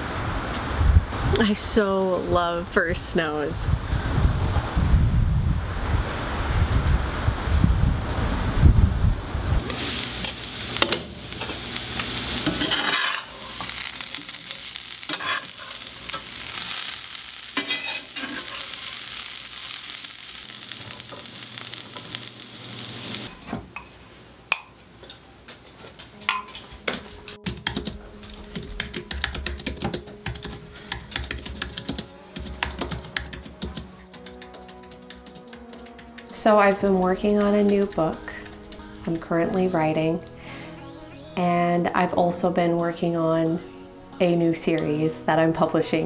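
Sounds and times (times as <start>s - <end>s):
vegetables sizzling in a pan: 9.6s - 24.2s
sharp irregular clicks and taps: 27.4s - 36.4s.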